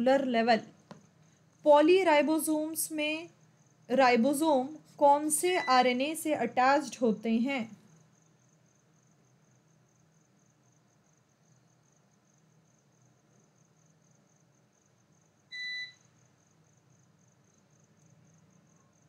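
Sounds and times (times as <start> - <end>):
short electronic beep: 15.5 - 16.0.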